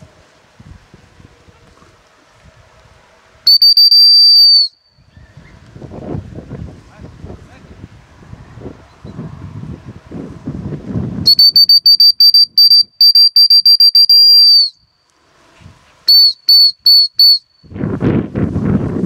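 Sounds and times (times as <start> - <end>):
wind buffeting microphone: 0.0 - 3.5, 5.0 - 11.7, 15.4 - 16.0, 17.6 - 19.0
dog whistle blasts: 3.5 - 5.1, 11.2 - 14.9, 16.1 - 17.7.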